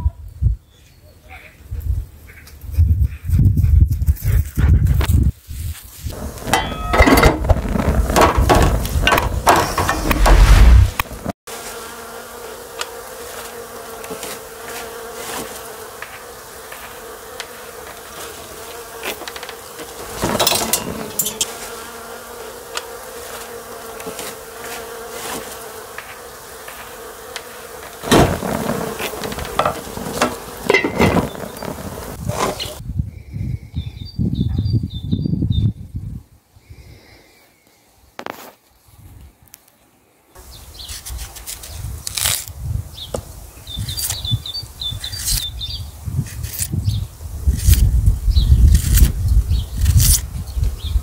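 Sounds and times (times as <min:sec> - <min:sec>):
insect buzzing steadily: 0:06.0 - 0:32.8, 0:40.1 - 0:51.0
loud low rumble with knocks: 0:07.2 - 0:11.0.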